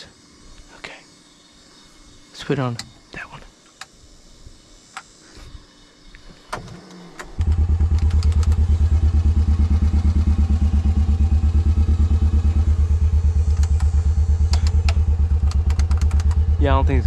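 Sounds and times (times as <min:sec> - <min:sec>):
starter clicks: 0:06.5 - 0:08.7, 0:13.5 - 0:16.4
engine cranking on starter: 0:06.5 - 0:08.8, 0:13.5 - 0:16.4.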